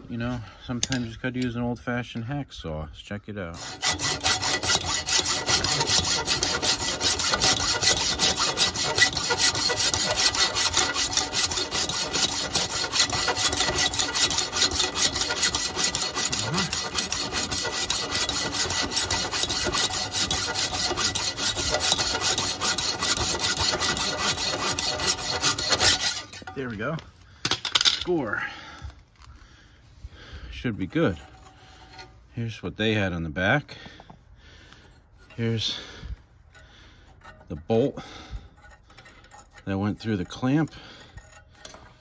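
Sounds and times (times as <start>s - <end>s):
hacksaw cutting steel: 3.4s - 26.9s, 35.2s - 42.0s.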